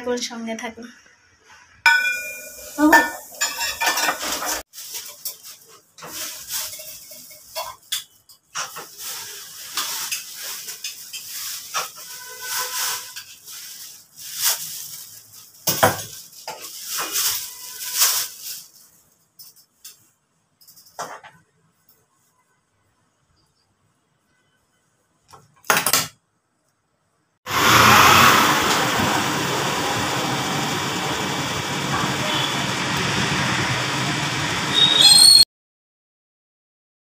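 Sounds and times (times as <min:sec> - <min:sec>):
metal utensils and pans clinking: 0:01.9 - 0:18.8
hiss: 0:27.5 - 0:34.7.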